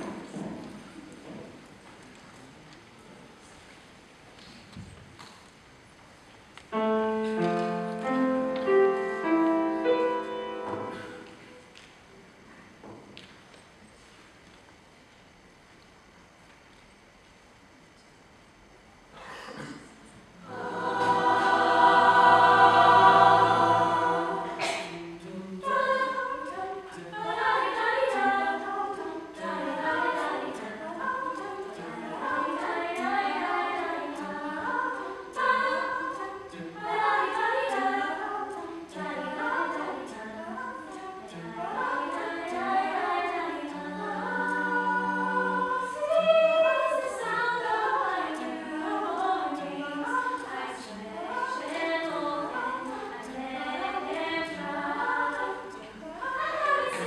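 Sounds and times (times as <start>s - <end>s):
mixed choir singing a cappella: 0.0s - 0.5s, 8.0s - 11.4s, 20.4s - 57.0s.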